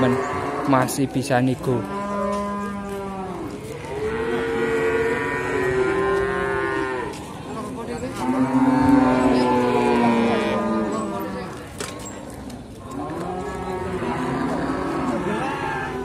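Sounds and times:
calves mooing: 0.0s - 1.0s, 8.2s - 11.4s.

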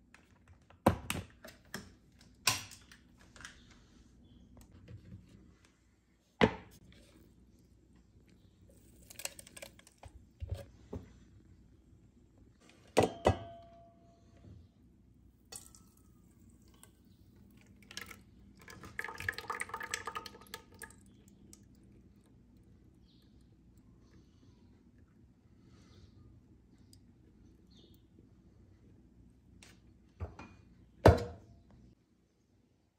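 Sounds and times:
kitchenware knocks and clatters: 13.0s - 13.8s, 30.2s - 31.4s
thick batter pouring into a bowl: 15.6s - 21.8s.

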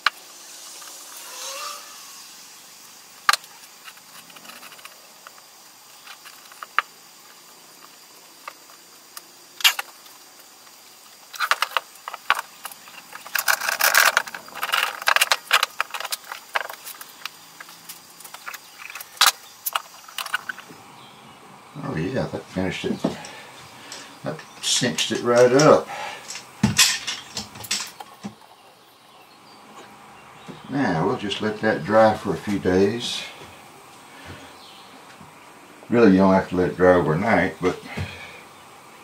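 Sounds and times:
wooden boards rubbing together: 11.1s - 20.7s
bar clamps clicking and rattling: 23.2s - 28.3s
wood and clamps knocking: 26.3s - 28.4s.

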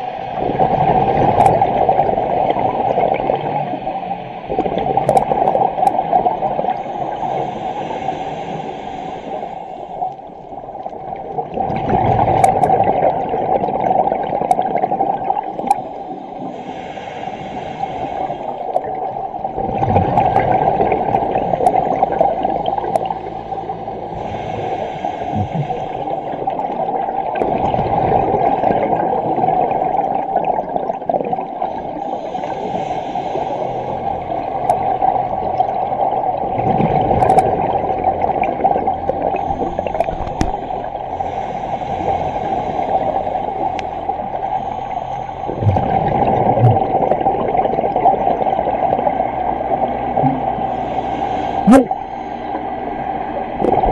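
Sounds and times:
underwater regulator bubbling: 0.0s - 7.4s, 10.8s - 16.6s, 17.7s - 41.4s, 45.5s - 53.9s
breathing hiss: 6.9s - 10.2s, 16.1s - 18.8s, 23.0s - 26.4s, 32.0s - 34.3s, 39.4s - 45.5s, 50.5s - 53.2s.

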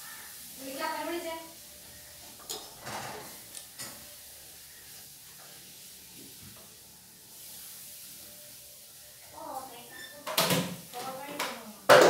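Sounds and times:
steady hiss: 0.0s - 11.9s.

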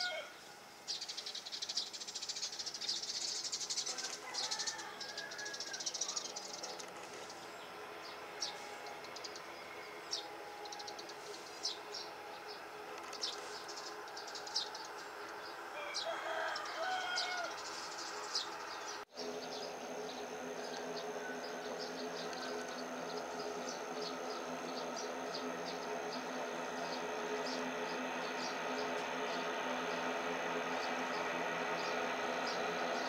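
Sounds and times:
rooster crowing: 0.0s - 0.4s, 3.8s - 6.5s, 15.4s - 18.7s, 20.0s - 33.0s
birds chirping: 0.0s - 33.0s
distant turboprop engines humming: 0.0s - 33.0s
high-pitched whine: 0.0s - 33.0s.

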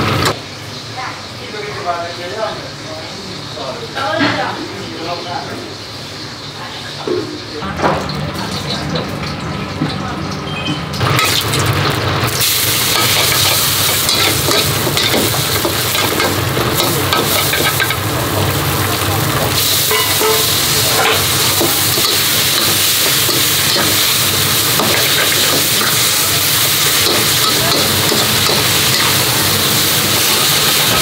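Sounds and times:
noodles sizzling in a wok: 11.0s - 31.0s
metal ladle scraping a wok: 19.7s - 31.0s.

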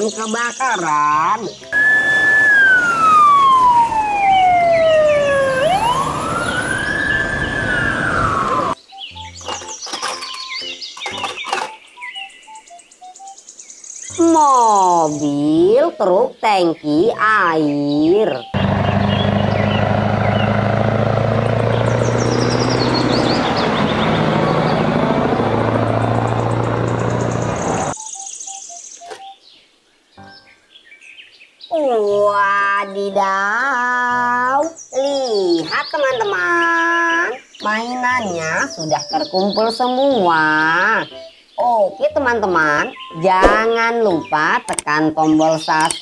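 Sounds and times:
high chirping tones: 1.6s - 15.8s, 25.5s - 29.4s
fire engine siren wailing: 1.7s - 8.8s, 18.6s - 28.0s.

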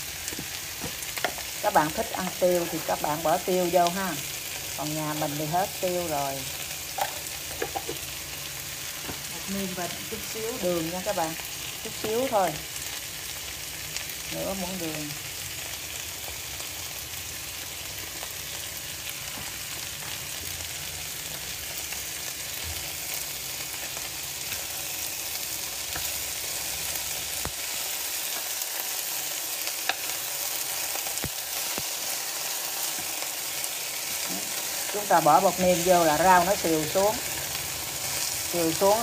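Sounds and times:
food sizzling in frying pan: 0.0s - 39.0s.

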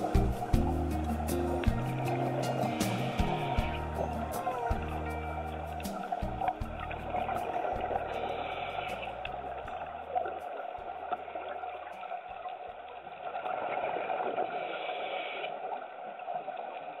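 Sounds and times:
underwater watery hiss: 0.0s - 10.6s, 14.0s - 15.8s
low background music: 0.0s - 11.6s.

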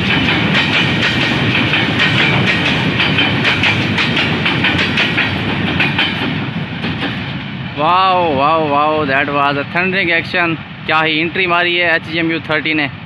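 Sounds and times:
wheels clattering over rail joints: 0.0s - 7.6s
train passing at speed: 0.0s - 13.0s.

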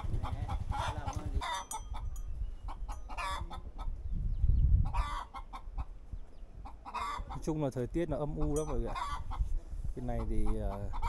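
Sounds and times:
chickens clucking: 0.0s - 4.1s, 4.8s - 7.6s, 8.2s - 11.0s.

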